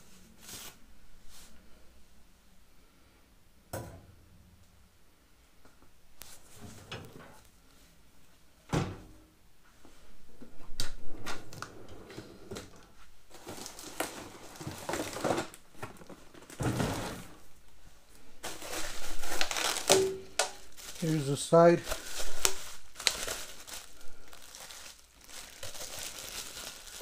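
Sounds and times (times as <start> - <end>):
bubble wrap rustling: 13.3 - 27.0.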